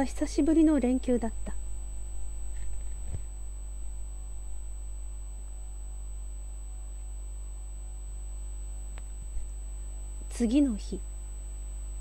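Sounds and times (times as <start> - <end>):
low electrical hum: 0.0 - 12.0
thin high whine: 0.0 - 12.0
faint click: 8.9 - 9.1.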